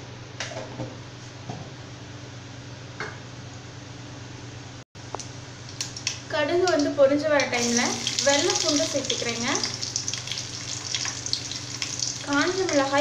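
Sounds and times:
seeds sizzling in oil: 0:07.6 - 0:13.0.

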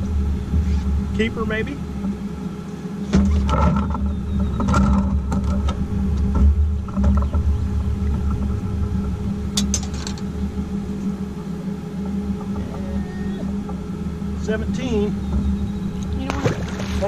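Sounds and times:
outboard motor humming: 0:00.0 - 0:17.0.

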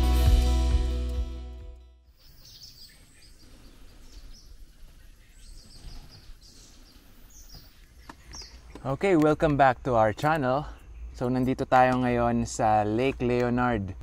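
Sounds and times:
high bird chirps: 0:02.1 - 0:08.9.

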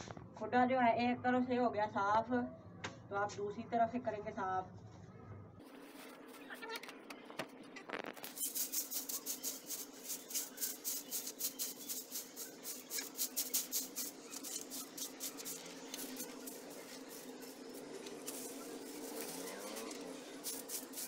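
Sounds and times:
twig broom sweeping straw: 0:08.2 - 0:21.0.

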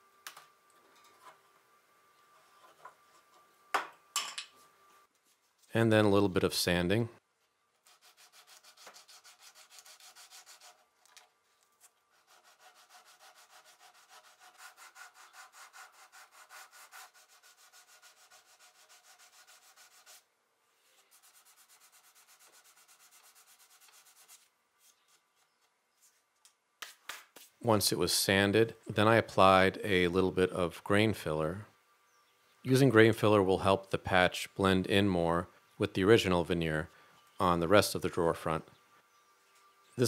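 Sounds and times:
sanding block rubbing wood: 0:07.9 - 0:10.8, 0:12.1 - 0:20.2, 0:21.0 - 0:25.0.

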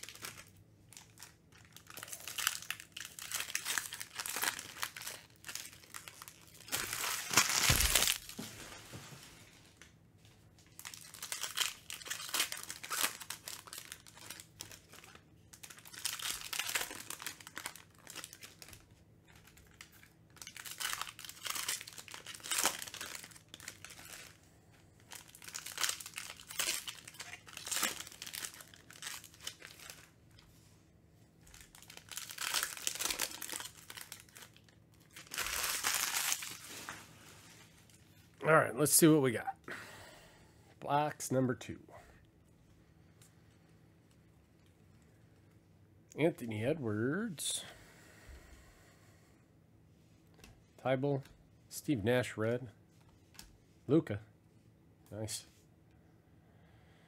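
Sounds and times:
foil wrappers crinkling and tearing: 0:00.0 - 0:09.1, 0:10.6 - 0:30.5, 0:31.4 - 0:38.3.

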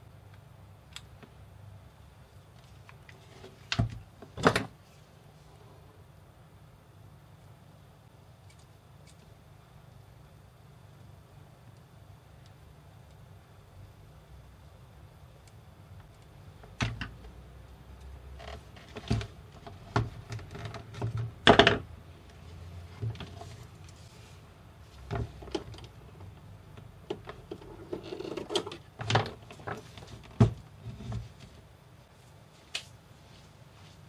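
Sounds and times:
scraping rustle: 0:22.5 - 0:25.5.

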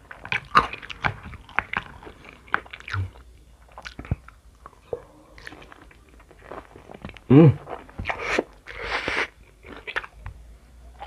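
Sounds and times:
chewing and crunching food: 0:00.0 - 0:11.0
person humming: 0:07.3 - 0:07.6.

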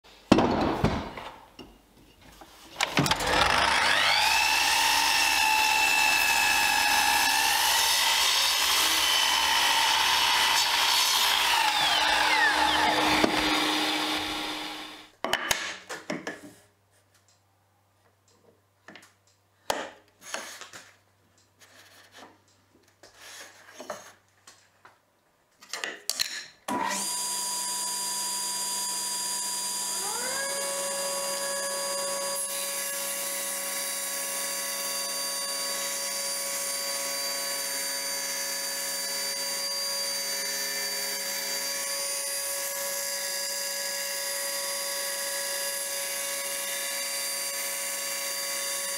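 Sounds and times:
miter saw cutting a board: 0:03.0 - 0:15.1, 0:26.8 - 0:48.9
table saw running: 0:03.0 - 0:15.1, 0:26.8 - 0:48.9.

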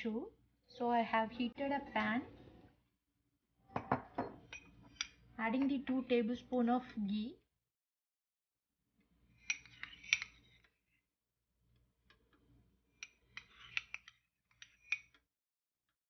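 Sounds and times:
metal spoon scraping frying pan: 0:09.4 - 0:10.6, 0:13.0 - 0:15.2.

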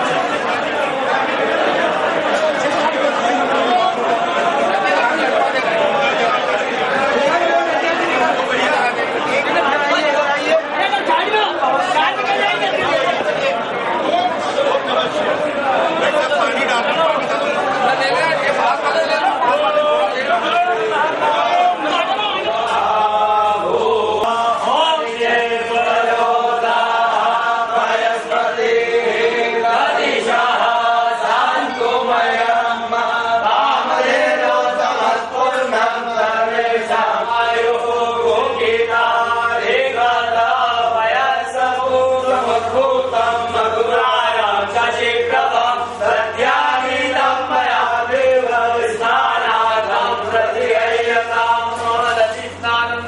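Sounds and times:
group chanting in unison: 0:17.8 - 0:53.0.

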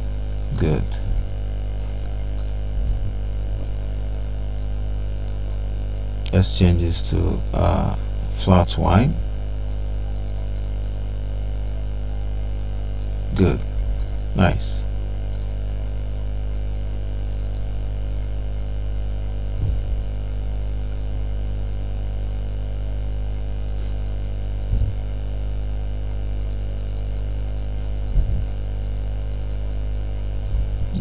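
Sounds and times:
soft low thumps: 0:00.0 - 0:04.5, 0:19.4 - 0:20.3, 0:24.6 - 0:25.2, 0:28.0 - 0:28.6, 0:30.3 - 0:31.0
electrical mains hum: 0:00.0 - 0:31.0
faint rapid clicking: 0:26.4 - 0:30.0.

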